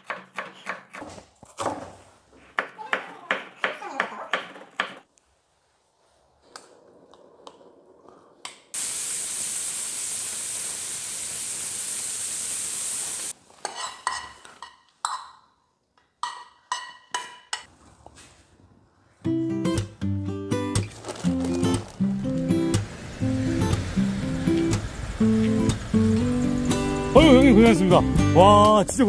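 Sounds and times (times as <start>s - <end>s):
food sizzling: 8.8s - 13.4s, 21.0s - 28.7s
dishes clinking: 13.6s - 17.7s.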